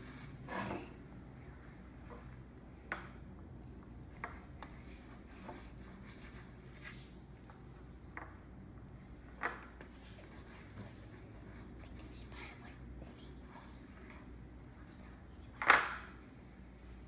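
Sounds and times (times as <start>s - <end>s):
paintbrush scratching and dabbing: 4.6s - 7.2s, 10.0s - 14.0s.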